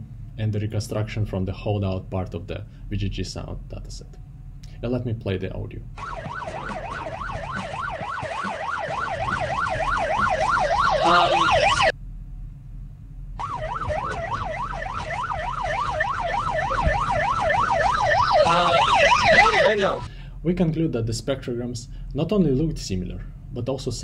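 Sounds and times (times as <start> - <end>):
ambulance siren yelping: 6.0 - 11.9, 13.4 - 20.1.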